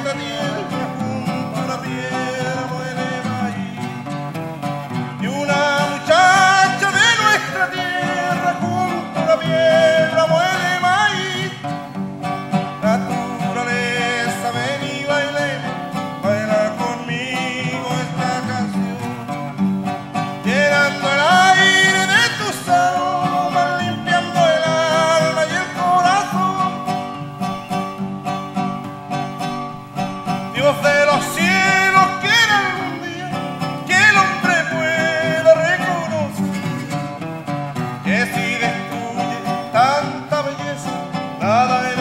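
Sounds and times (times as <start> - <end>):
man singing: 0.0 - 27.6, 30.2 - 42.0
acoustic guitars strumming: 0.0 - 42.0.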